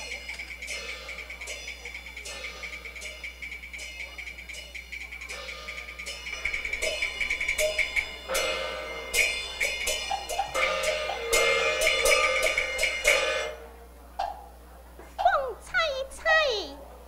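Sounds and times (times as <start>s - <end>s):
gongs and cymbals clashing: 0.0s - 13.8s
drum and clapper strikes: 0.7s - 13.6s, 14.2s - 14.5s.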